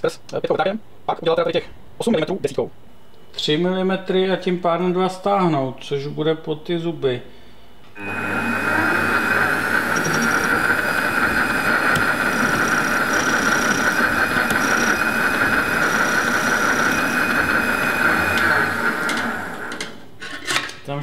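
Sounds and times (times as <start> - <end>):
metal lathe running: 8.0 - 20.0.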